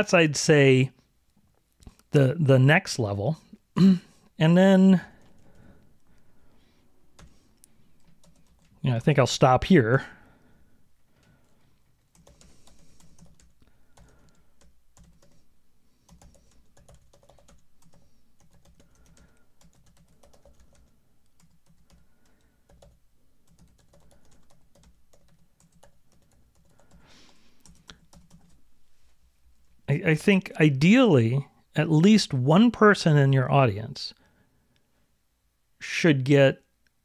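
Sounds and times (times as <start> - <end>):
typing on computer keyboard: 8.0 - 8.8, 11.2 - 15.4, 16.1 - 28.6.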